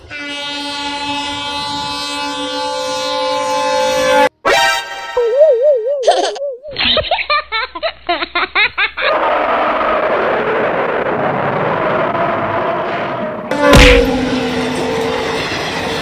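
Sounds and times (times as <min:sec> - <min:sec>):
warbling cartoon tone: 0:05.0 - 0:06.8
comic laughter sound effect: 0:05.2 - 0:09.4
passenger train running past: 0:11.5 - 0:16.0.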